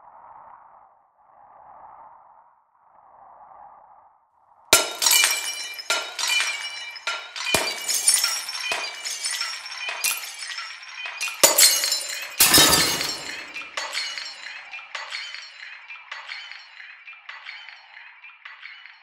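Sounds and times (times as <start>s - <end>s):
glass-breaking crashes and clinks: 4.8s - 16.6s.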